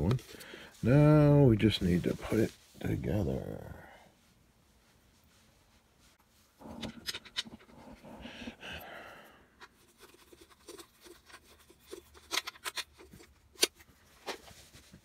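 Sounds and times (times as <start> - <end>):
plastic rustling and scraping: 9.6 - 15.0.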